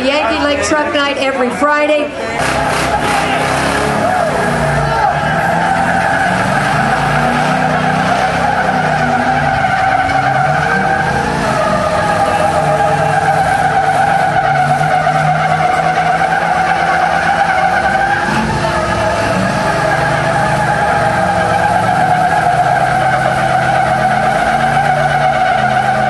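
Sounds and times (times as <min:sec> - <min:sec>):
truck engines revving high: 0:00.0 - 0:26.0
tires spinning and squealing: 0:02.3 - 0:26.0.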